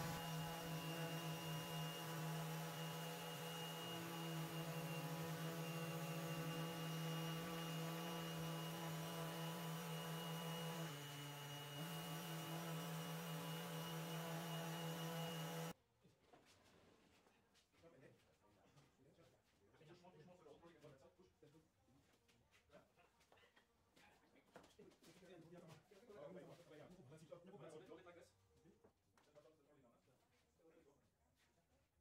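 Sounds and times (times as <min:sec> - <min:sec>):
orbital sander running: 0:00.0 - 0:15.8.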